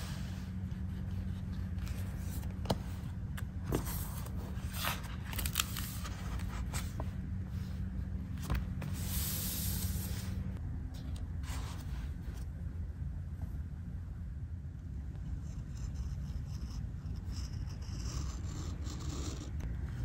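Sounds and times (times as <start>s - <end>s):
paper rustling and sliding: 0.0s - 10.6s
low hum: 0.0s - 20.0s.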